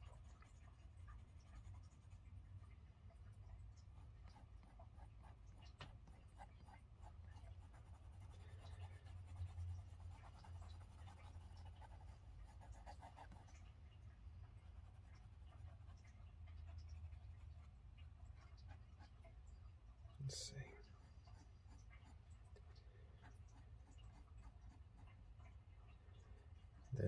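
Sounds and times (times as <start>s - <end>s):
low steady hum: 0.0s - 27.0s
pencil scratching on paper: 4.0s - 13.6s.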